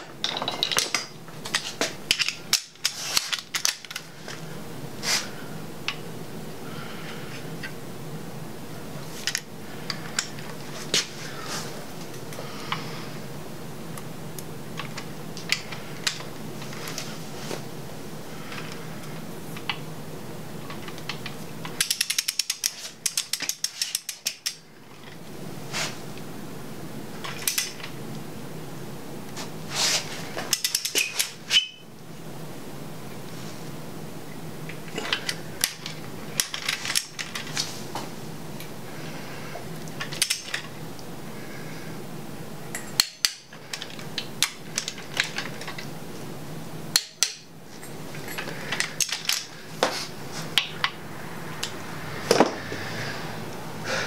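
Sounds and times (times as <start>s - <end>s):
metal parts clicking and tapping: 0.0s - 4.4s, 20.7s - 25.2s, 27.2s - 27.9s, 30.4s - 31.8s, 34.7s - 37.7s, 40.0s - 40.7s, 42.7s - 45.9s, 46.9s - 49.9s
steady low hum: 0.0s - 54.0s.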